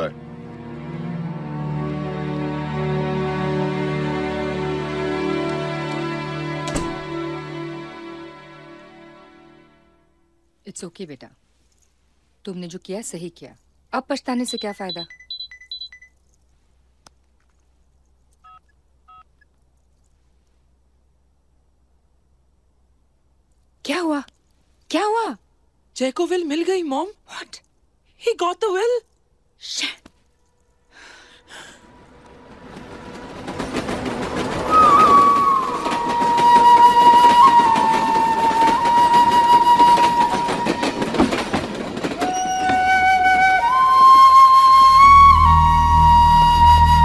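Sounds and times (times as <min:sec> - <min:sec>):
short keypad beeps: 0:14.5 - 0:16.1
high chirping phone alert beeps: 0:14.5 - 0:16.2
train clattering: 0:30.9 - 0:47.0.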